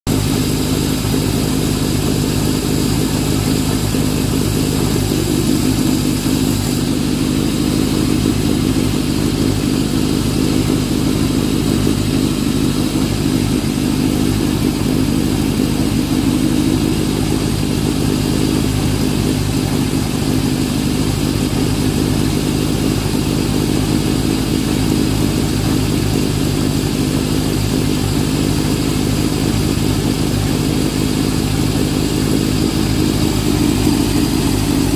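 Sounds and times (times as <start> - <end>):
car engine idling: 0.0 - 34.9.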